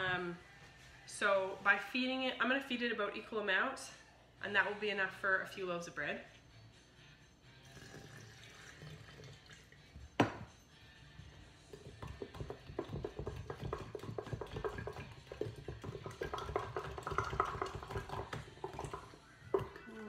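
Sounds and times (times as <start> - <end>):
water poured into glass jar: 7.6 - 9.9, 11.7 - 19.8
utensil stirring in glass jar: 11.7 - 19.8.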